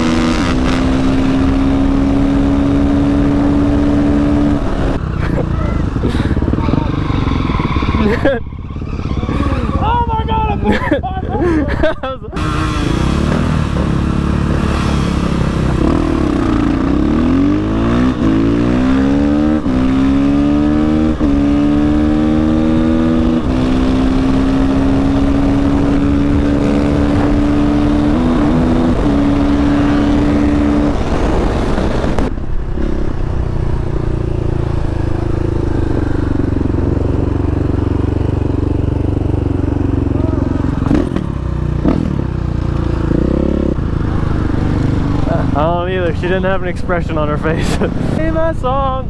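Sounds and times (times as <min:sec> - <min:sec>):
dirt bike engine accelerating: 0:00.0 - 0:10.9, 0:11.7 - 0:48.6
wind rush: 0:12.3 - 0:20.1, 0:22.6 - 0:38.2.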